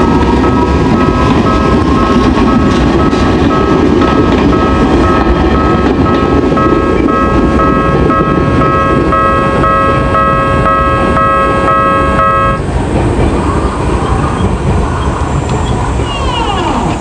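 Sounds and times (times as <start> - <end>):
crossing bell electronic dings: 0.0 - 12.6.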